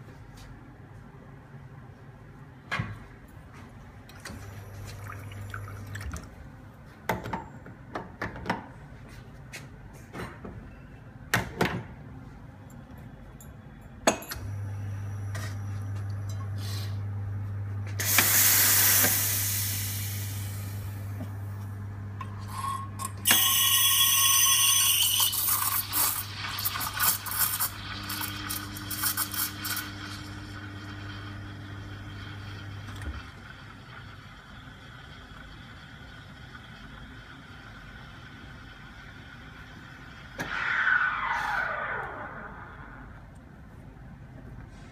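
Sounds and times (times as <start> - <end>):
espresso machine pump humming: 17.8 - 39.8
steam blast: 18.0 - 21.0, 40.3 - 43.2
steam wand hissing and squealing: 23.3 - 26.2.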